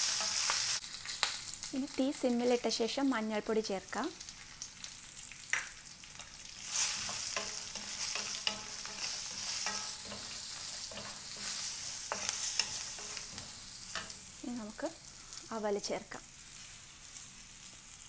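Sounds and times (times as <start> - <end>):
food sizzling in oil: 0.0 - 18.0
wooden spatula scraping pan: 6.7 - 14.2.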